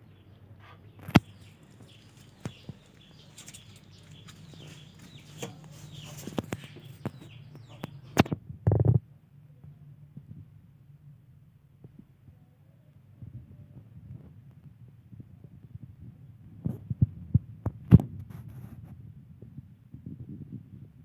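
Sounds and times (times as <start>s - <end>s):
cats scuffling on wooden floor: 1.6s - 7.0s.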